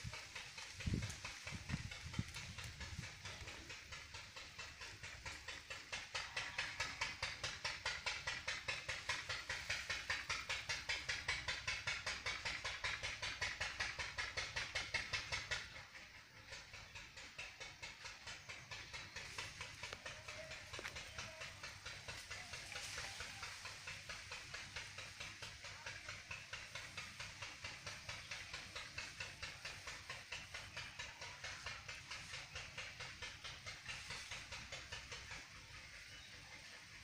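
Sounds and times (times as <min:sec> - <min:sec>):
rhythmic pulsing hiss: 0:00.0 - 0:37.0.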